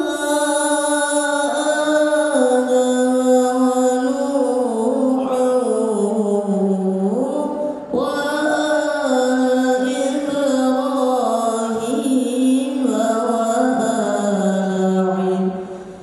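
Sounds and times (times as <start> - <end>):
man chanting into a microphone: 0.0 - 16.0.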